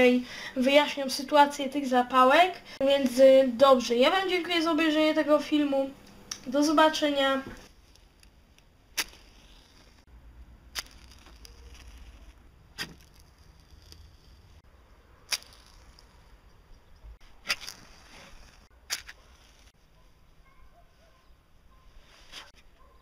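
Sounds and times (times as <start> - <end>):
matches striking on rough surfaces: 7.6 - 10.0, 10.7 - 14.6, 15.2 - 16.4, 17.2 - 19.8.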